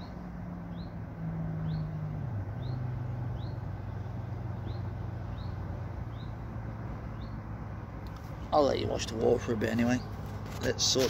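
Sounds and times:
bird chirping: 0.0 - 1.0, 1.6 - 7.6, 9.1 - 10.4
low engine hum: 0.0 - 11.0
outdoor background noise: 0.0 - 11.0.

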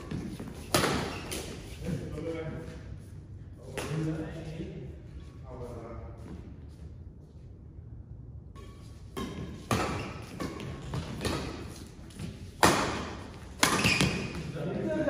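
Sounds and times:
badminton racket hitting shuttlecock: 0.0 - 1.6, 8.6 - 14.5.

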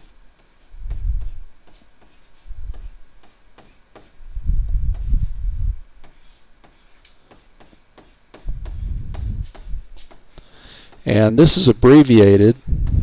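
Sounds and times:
stylus tapping and scraping: 0.0 - 4.2, 4.8 - 5.3, 6.0 - 11.2.

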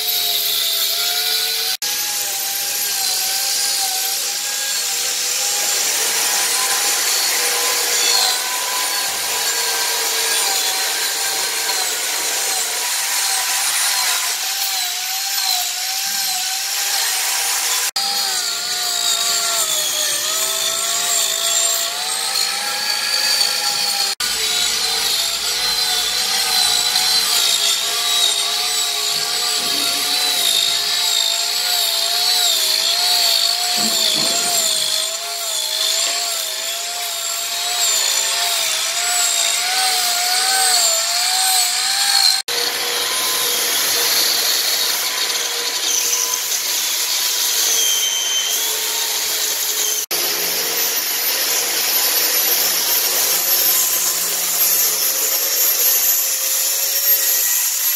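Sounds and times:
belt sander sanding wood: 0.0 - 47.8
angle grinder cutting wood: 0.0 - 57.9
power tool grinding wood: 0.0 - 57.9.

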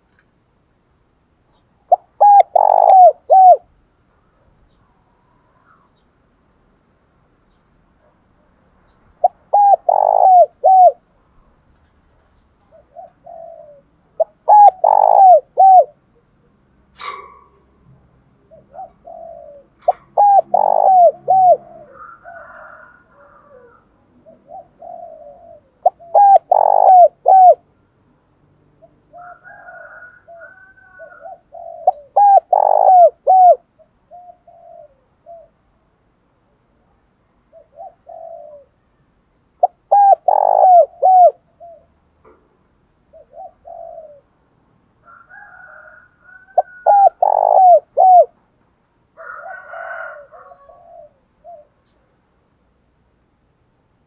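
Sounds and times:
faint bird calls: 1.5 - 3.7, 7.5 - 27.7, 28.8 - 35.7, 36.8 - 44.4, 45.0 - 48.4
dove cooing: 1.9 - 3.7, 9.2 - 11.1, 11.9 - 16.1, 16.9 - 17.8, 18.4 - 27.7, 28.8 - 35.7, 37.5 - 38.8, 39.6 - 42.4, 43.1 - 44.3, 45.0 - 48.4, 49.2 - 52.1.

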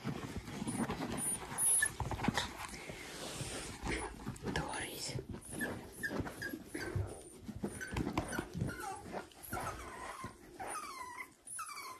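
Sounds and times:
puppies whimpering and yipping: 0.0 - 2.7, 5.4 - 11.9.

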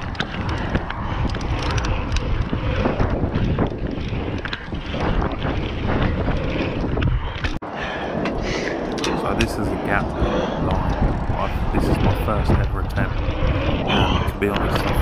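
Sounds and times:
bike knocking and rattling: 0.0 - 7.6, 10.8 - 15.0
wind buffeting microphone: 0.0 - 15.0
tyres rumbling on dirt: 9.1 - 15.0.

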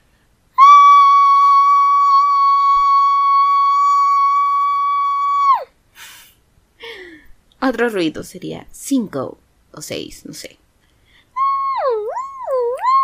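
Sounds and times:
short breathy hiss: 5.9 - 7.4
person making whistle-like mouth tone: 11.4 - 13.0.

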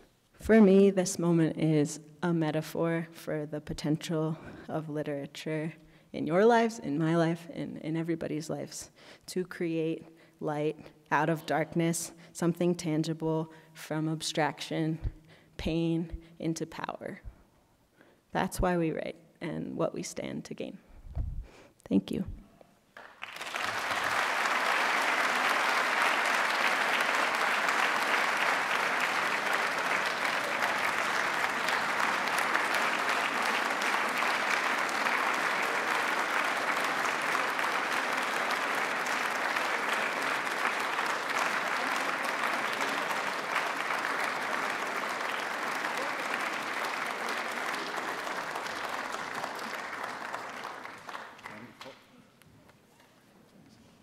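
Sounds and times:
audience applauding: 23.0 - 52.0.

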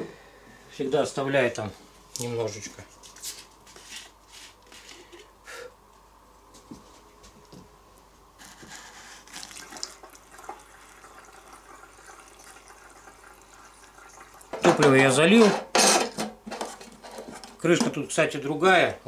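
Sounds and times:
liquid trickling into tank: 9.2 - 14.7.

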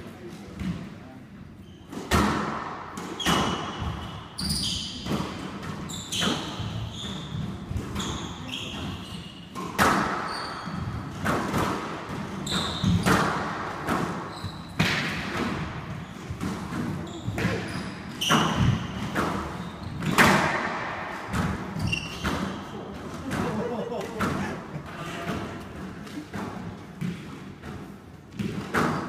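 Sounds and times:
shoes squeaking on hardwood floor: 3.2 - 5.1, 5.9 - 9.6, 14.2 - 14.8, 16.0 - 20.2, 21.7 - 22.7
squash ball hits off walls: 9.6 - 23.6, 25.3 - 29.0.

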